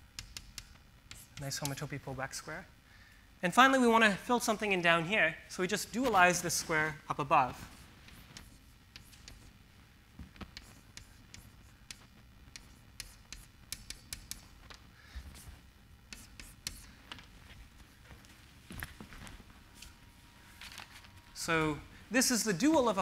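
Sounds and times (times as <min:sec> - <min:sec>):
chalk scratching on blackboard: 0:00.2 - 0:01.9, 0:07.6 - 0:09.6, 0:10.5 - 0:14.6, 0:15.2 - 0:17.0.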